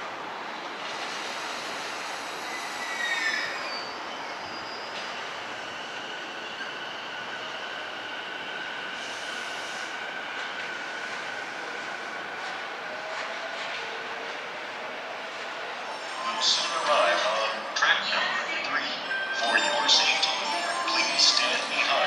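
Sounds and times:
train running on tracks: 0.0s - 22.0s
train wheels squealing: 1.1s - 10.2s
thin high tone: 15.8s - 17.8s, 18.9s - 22.0s.

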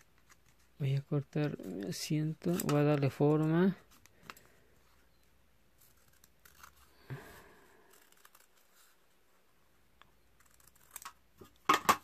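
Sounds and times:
scissors snipping paper: 5.9s - 6.9s, 7.9s - 8.8s, 10.4s - 11.2s.

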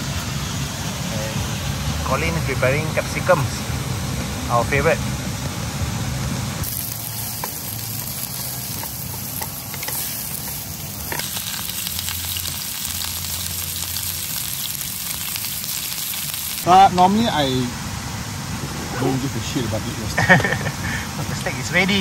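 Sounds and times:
food frying sizzle: 6.6s - 17.3s.

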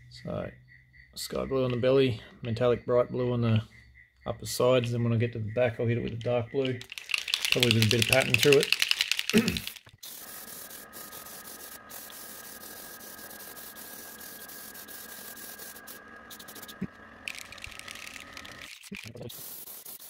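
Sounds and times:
airbrush hissing: 6.8s - 20.0s
faint steady whine: 10.1s - 19.2s.

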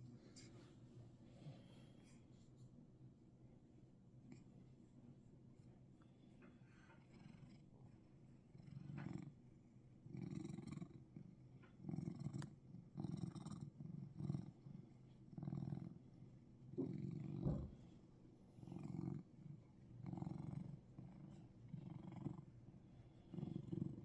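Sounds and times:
cat purring: 4.2s - 24.0s.

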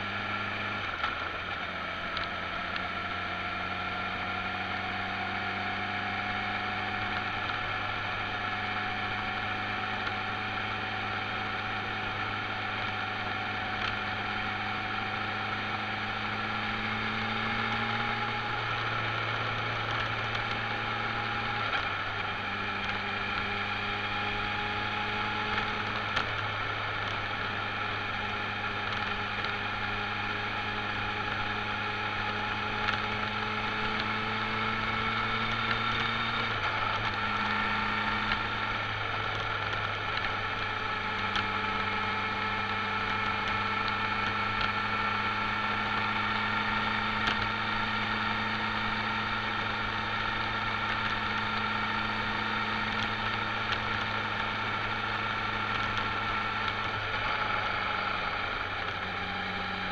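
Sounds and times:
road noise: 0.0s - 59.9s
vehicle engine running: 0.0s - 59.9s.

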